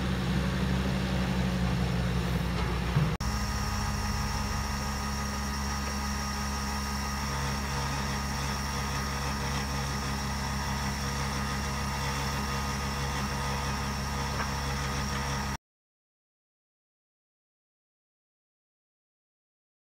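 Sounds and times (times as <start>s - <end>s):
low steady hum: 0.0s - 15.5s.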